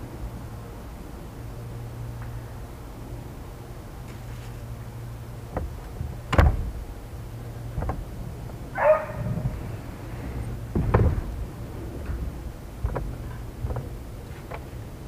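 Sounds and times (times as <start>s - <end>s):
low steady hum: 0.0s - 15.0s
dull knocks from gear: 10.7s - 11.4s.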